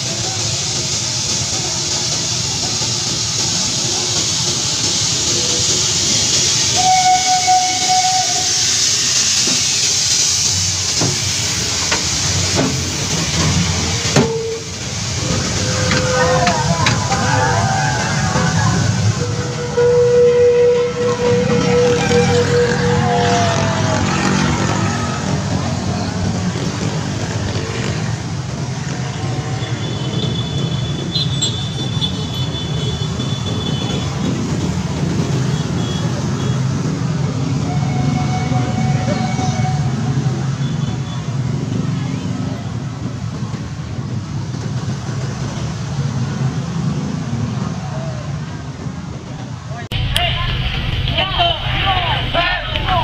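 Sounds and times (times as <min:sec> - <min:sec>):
steam locomotive hissing: 0:00.0 - 0:53.0
traffic engines rumbling: 0:00.0 - 0:53.0
steam whistle: 0:06.1 - 0:09.6, 0:14.0 - 0:25.8, 0:37.4 - 0:41.3.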